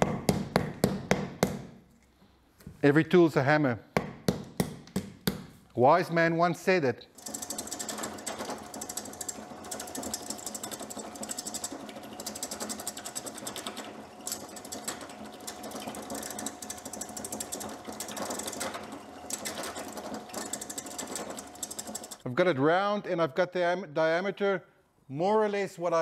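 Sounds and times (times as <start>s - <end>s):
gouge rattling against wood: 7.2s - 22.2s
lathe motor humming: 7.2s - 22.2s.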